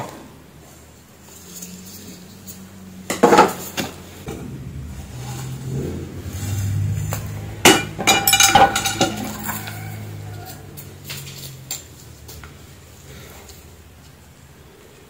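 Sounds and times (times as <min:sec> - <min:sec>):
cookware clinking and knocking: 0:07.6 - 0:09.7.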